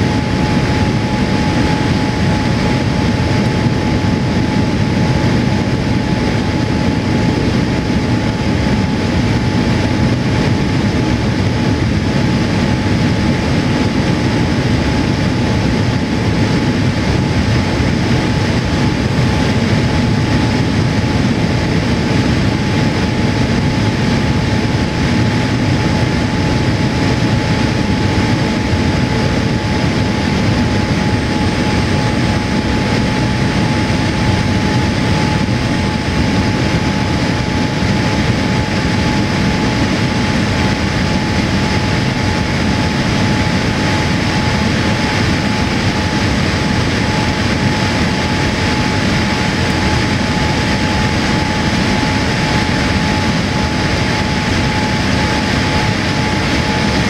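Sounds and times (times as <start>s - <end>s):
airflow rush in aircraft cabin: 0.0s - 57.0s
heavy low rumble: 0.0s - 57.0s
jet engine hum: 0.0s - 57.0s
thin steady whine: 0.0s - 57.0s.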